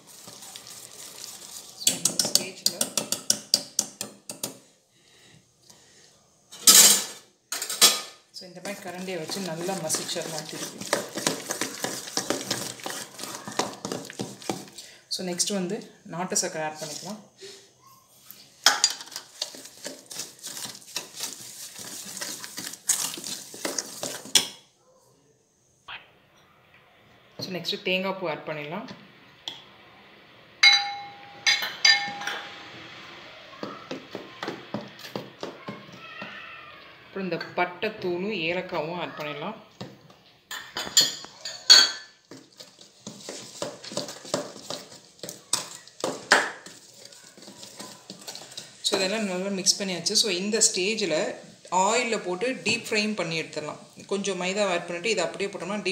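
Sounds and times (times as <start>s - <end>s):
spoon stirring in bowl: 0.0s - 4.7s, 7.6s - 15.6s, 16.4s - 17.2s, 18.2s - 24.7s, 30.6s - 32.7s, 40.5s - 50.2s
spoon scraping and clinking in bowl: 30.6s - 32.6s.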